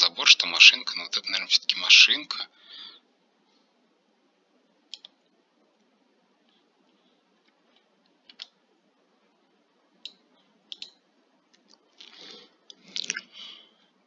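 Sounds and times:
computer mouse clicks: 4.9s - 5.2s, 7.4s - 8.6s, 10.0s - 11.8s.

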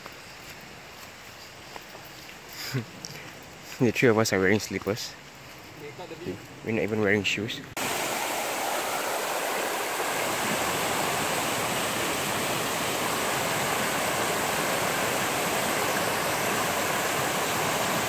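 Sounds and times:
stream rushing over boulders: 7.8s - 18.0s.

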